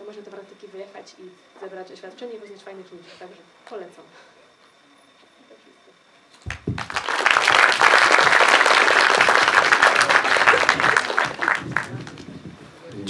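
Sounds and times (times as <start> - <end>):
audience clapping: 6.5 - 12.4.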